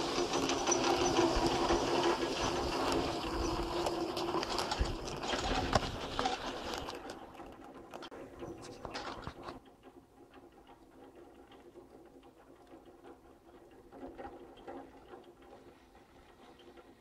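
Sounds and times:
loud clatter: 0:00.0 - 0:08.1
lift haul rope whirring hum: 0:00.0 - 0:09.6
rollers clicking: 0:00.0 - 0:17.0.

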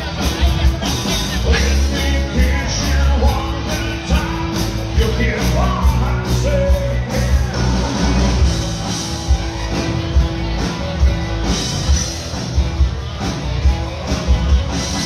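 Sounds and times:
acoustic and electric guitars: 0:00.0 - 0:15.0
drum kit beat: 0:00.0 - 0:15.0
person singing: 0:01.4 - 0:08.4.

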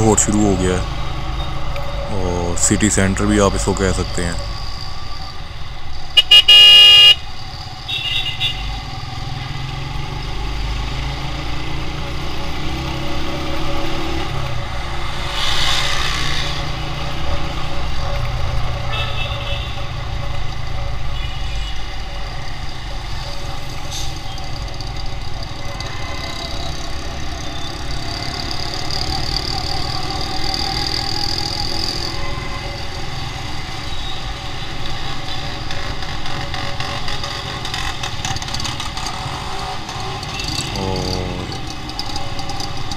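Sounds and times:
motorcycle engine: 0:00.0 - 0:42.9
road noise: 0:00.0 - 0:42.9
loud horn blast: 0:06.2 - 0:07.2
faint traffic horns: 0:06.2 - 0:08.8, 0:18.8 - 0:20.0, 0:21.0 - 0:22.0.

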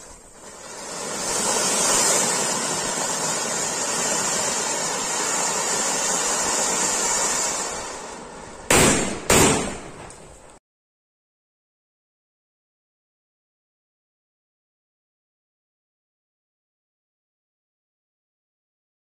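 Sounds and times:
fountain fireworks hissing: 0:00.0 - 0:10.6
loud bangs: 0:08.6 - 0:10.4.

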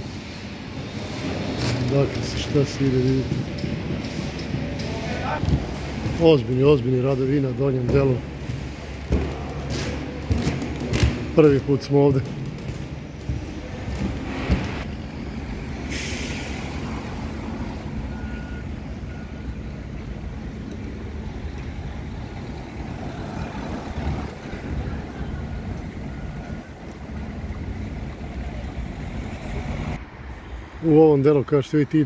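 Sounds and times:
traffic low rumble: 0:00.0 - 0:32.0
short hiss: 0:15.9 - 0:16.8.

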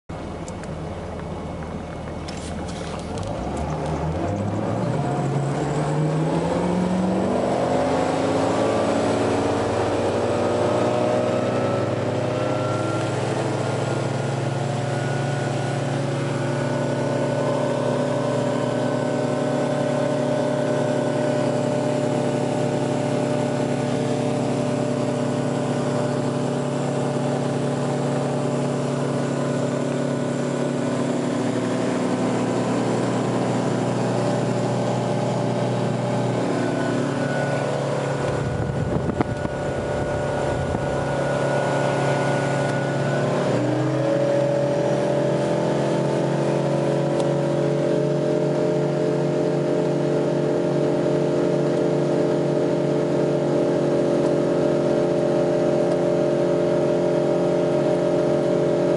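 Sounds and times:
boat engine running at high revs: 0:00.1 - 0:58.9
water and hull noise: 0:00.3 - 0:04.6
low rumbling with a bump: 0:36.2 - 0:43.5.

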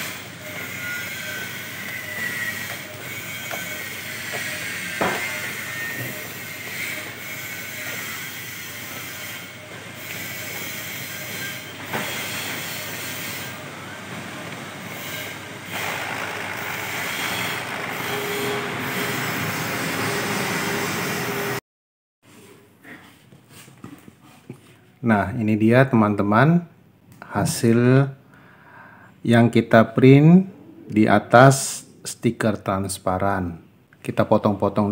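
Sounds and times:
printer carriage whirring: 0:09.6 - 0:21.6
motor whine: 0:15.6 - 0:21.6.

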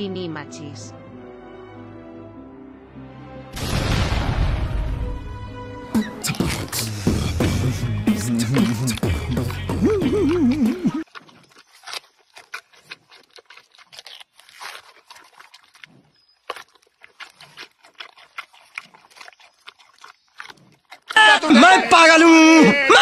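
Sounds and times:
loud music: 0:04.6 - 0:10.6
panda crunching bamboo: 0:06.3 - 0:21.3.

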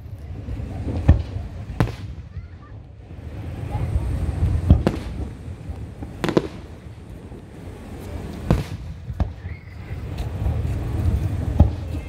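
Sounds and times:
firework shells bursting: 0:04.2 - 0:09.6.

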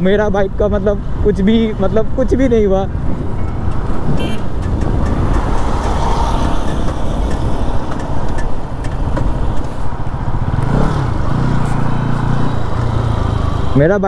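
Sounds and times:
wind on microphone: 0:01.0 - 0:12.8
motorcycle engine: 0:02.9 - 0:14.0.

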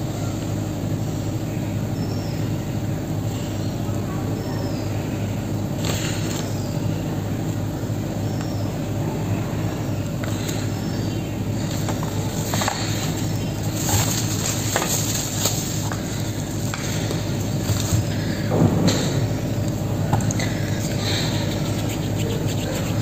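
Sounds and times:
steady background hum: 0:00.0 - 0:23.0
plastic and foil wrapping crinkling: 0:13.6 - 0:15.9.

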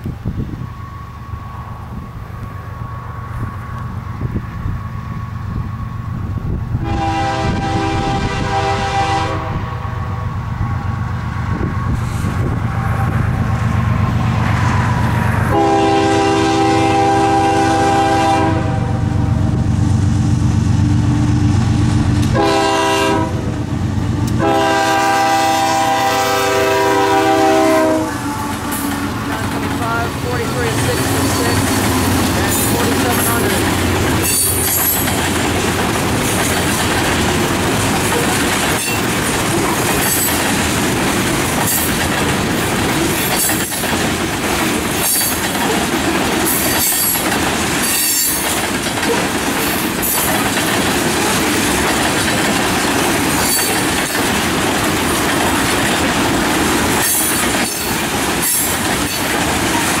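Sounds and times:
freight train wheels rumbling: 0:00.0 - 1:00.0
high wheel squeals: 0:31.0 - 0:35.1.

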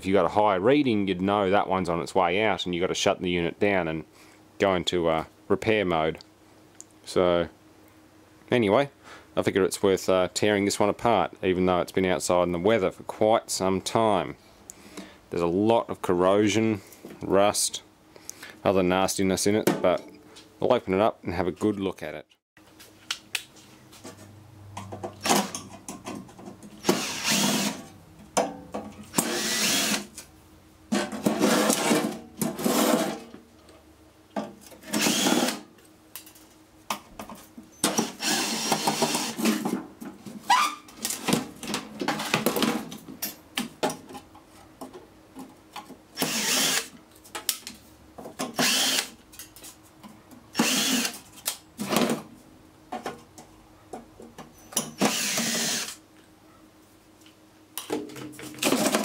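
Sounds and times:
cordless drill backing out screws: 0:55.0 - 0:56.0.

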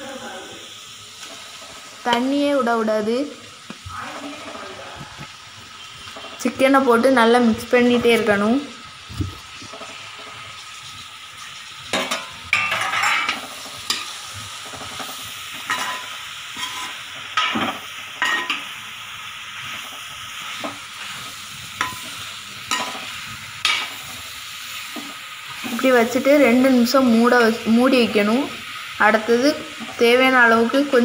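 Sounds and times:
food sizzling in a pan: 0:00.0 - 0:31.0
metal spoon scraping a pan: 0:11.9 - 0:18.7, 0:19.6 - 0:26.2.

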